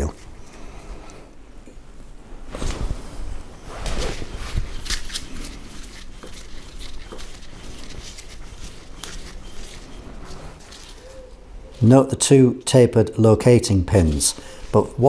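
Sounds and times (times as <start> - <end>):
hands rustling: 2.4 - 12.7.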